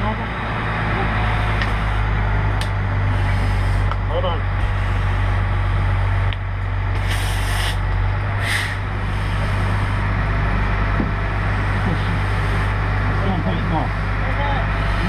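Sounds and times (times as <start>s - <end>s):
heavy engine rumbling: 0.0s - 15.0s
compressed air hisses: 3.2s - 3.9s, 7.0s - 7.8s, 8.4s - 9.5s.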